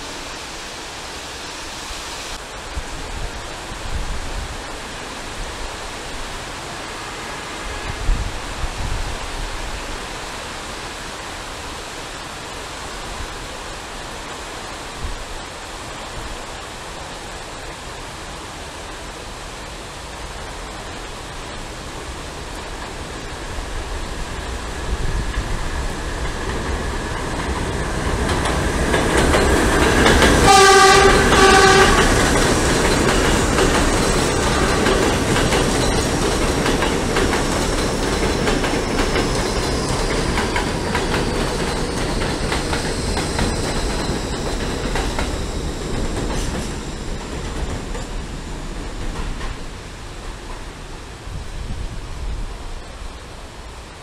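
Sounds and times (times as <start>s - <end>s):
rain hiss: 0.0s - 54.0s
subway train rumble: 0.0s - 54.0s
train wheels clattering on rails: 20.1s - 51.2s
train horn blast: 30.4s - 32.4s.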